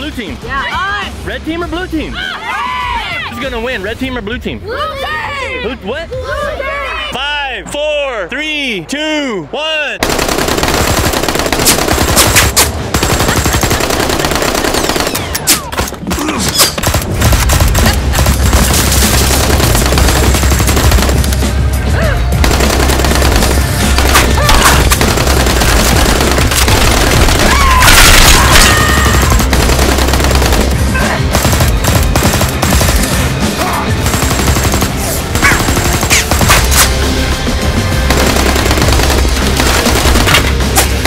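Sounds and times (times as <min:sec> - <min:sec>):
rapid gunfire-like shots: 0:10.0 - 0:21.7, 0:22.3 - 0:37.1, 0:38.0 - 0:41.0
backing music: 0:16.8 - 0:41.0.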